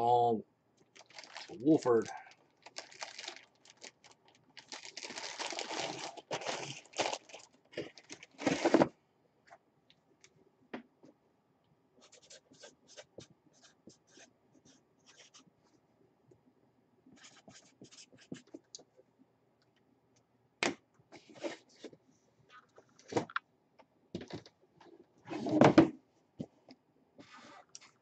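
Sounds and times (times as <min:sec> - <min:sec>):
rustling handling noise: 0:00.8 - 0:09.0
marker scratching on card: 0:12.0 - 0:15.4.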